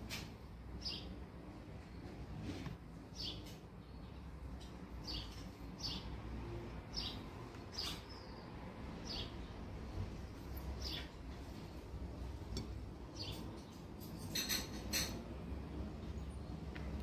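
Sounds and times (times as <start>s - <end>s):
small bird chirping: 0.8s - 1.2s, 3.1s - 6.2s, 6.9s - 9.6s, 10.3s - 11.2s, 13.0s - 14.6s.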